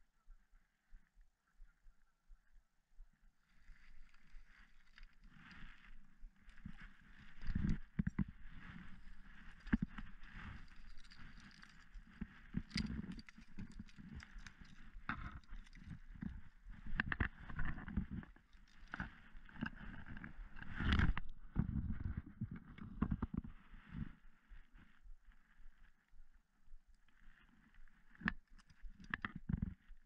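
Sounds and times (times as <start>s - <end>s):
grass rustling: 3.5s - 22.1s
footsteps through grass and dirt: 3.5s - 22.8s.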